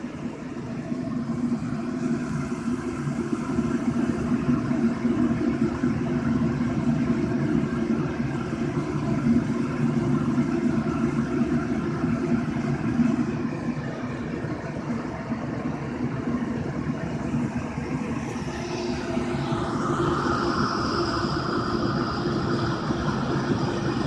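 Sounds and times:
fan hum: 0.0s - 24.0s.

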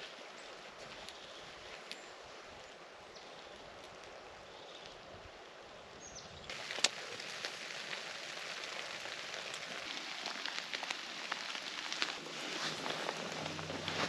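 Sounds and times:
rain pattering on a tarp: 6.5s - 14.0s.

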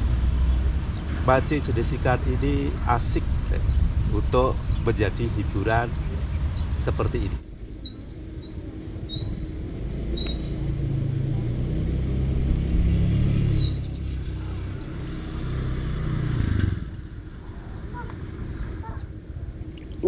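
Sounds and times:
vehicle engine passing by: 0.0s - 7.4s, 8.0s - 19.7s.

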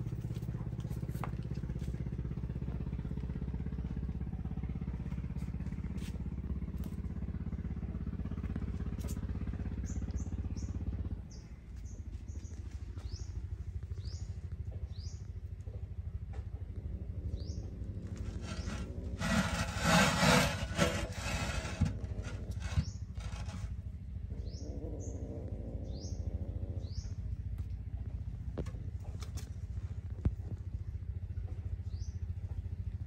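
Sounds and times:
low throbbing motor hum: 0.0s - 33.0s
small bird chirping: 9.8s - 15.4s, 25.8s - 27.3s.

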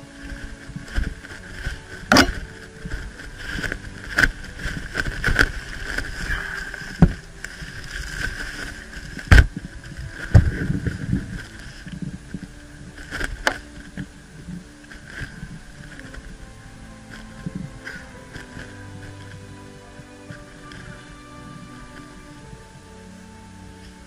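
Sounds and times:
footsteps in woodland: 0.0s - 24.0s
sharp knocks or cracks: 2.1s - 2.4s.

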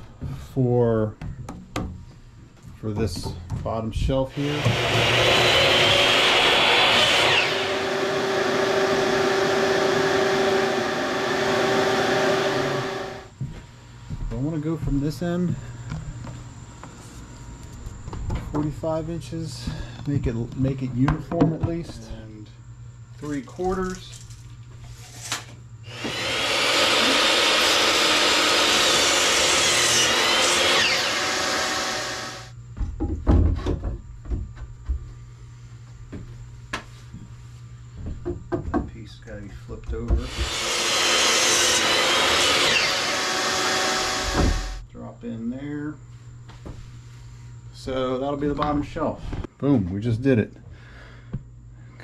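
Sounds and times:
shop vacuum humming: 4.2s - 13.6s, 25.8s - 32.6s, 40.0s - 44.8s
saw motor winding down: 4.3s - 13.3s, 25.9s - 32.5s, 40.2s - 44.8s.

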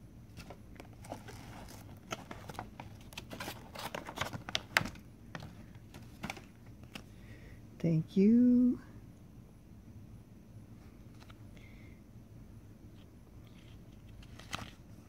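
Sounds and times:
plastic packaging crinkling: 0.3s - 7.0s.

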